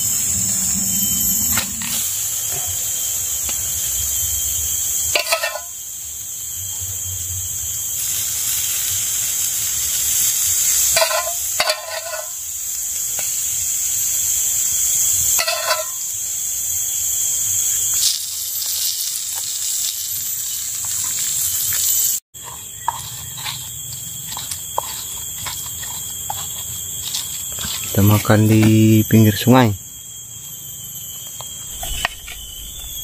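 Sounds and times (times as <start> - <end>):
chorus of forest insects: 0.0 - 33.0
stone pestle grinding on a plate: 22.4 - 27.9.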